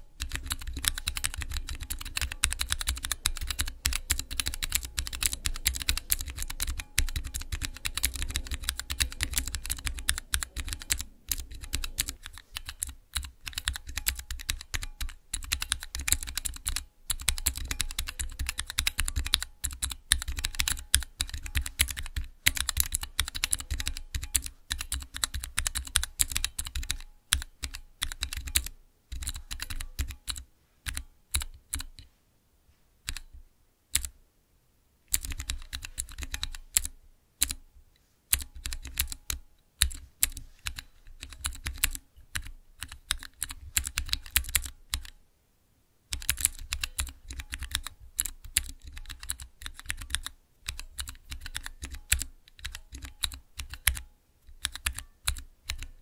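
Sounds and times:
mechanical keyboard typing: 0.0s - 32.1s, 33.0s - 34.2s, 35.1s - 37.6s, 38.3s - 45.2s, 46.1s - 56.0s.

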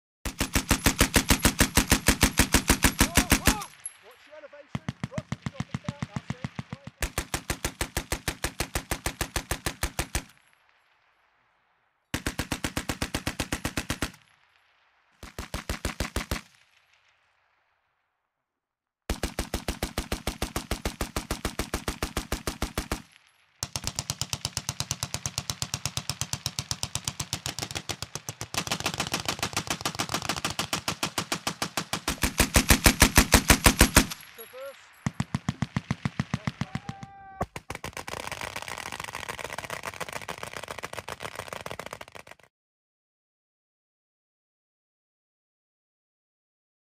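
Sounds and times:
machine guns firing bursts: 0.3s - 10.4s, 12.1s - 14.2s, 15.2s - 16.6s, 19.1s - 42.4s.

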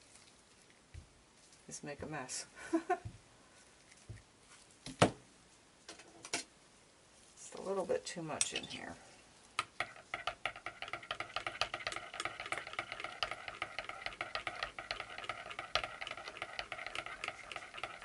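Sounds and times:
metal spoon scraping against glass: 9.8s - 18.0s.

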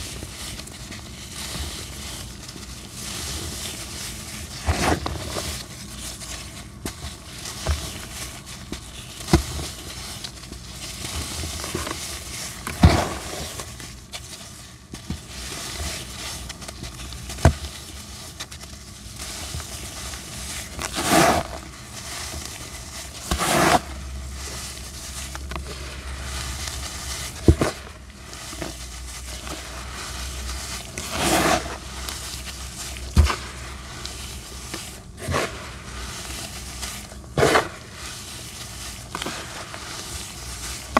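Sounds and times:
sand chunks crunching: 0.0s - 14.0s, 14.8s - 40.9s
gritty sand rustling: 19.1s - 40.9s.

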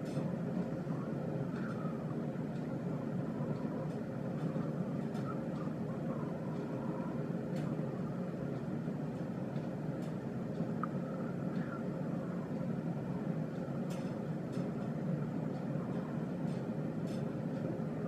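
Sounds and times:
low background rumble: 0.0s - 18.0s.

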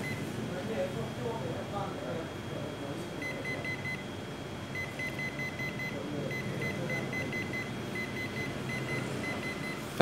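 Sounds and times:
copier keypad beeps: 0.0s - 0.3s, 3.2s - 9.9s
machine hum: 0.0s - 10.0s.

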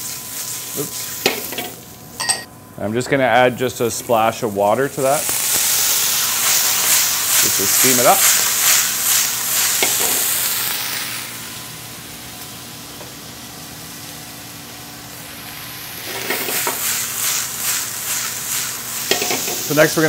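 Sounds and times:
vegetables sizzling in frying pan: 0.0s - 2.2s, 3.9s - 20.0s
pan tossed on gas burner: 16.1s - 16.8s, 19.1s - 19.7s.

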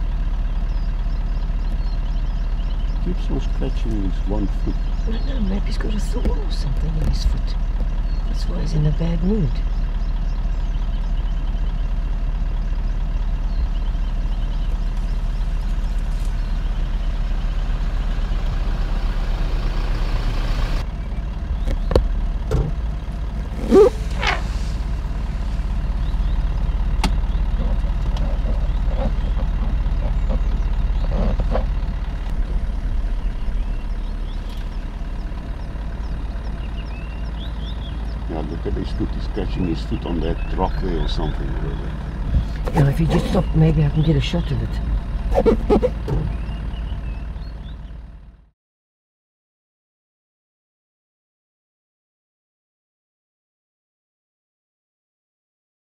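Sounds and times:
vehicle engine idling: 0.0s - 48.5s
short loud rising sound: 23.5s - 25.7s.

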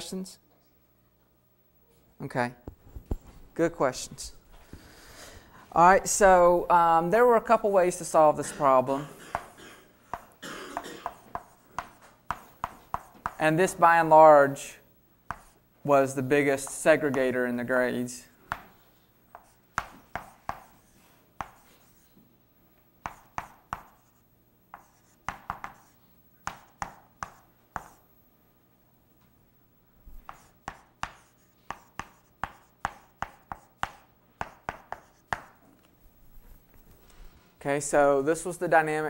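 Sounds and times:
chalk tapping and scraping on board: 10.1s - 10.4s, 11.0s - 13.5s, 15.3s - 15.6s, 16.6s - 17.3s, 18.5s - 22.2s, 23.0s - 28.0s, 30.2s - 35.6s.

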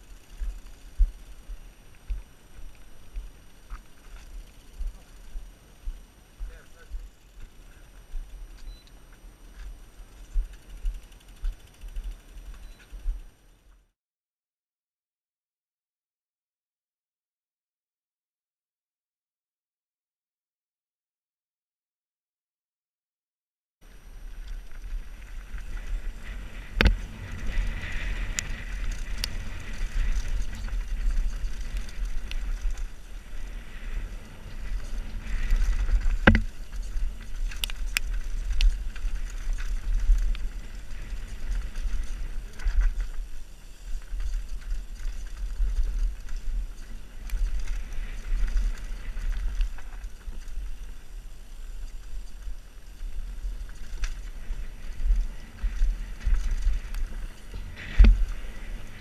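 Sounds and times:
bike rattling: 0.0s - 13.7s, 23.9s - 59.0s
bike tyre noise: 0.0s - 13.9s, 23.8s - 59.0s
wind rumble on microphone: 23.8s - 59.0s.

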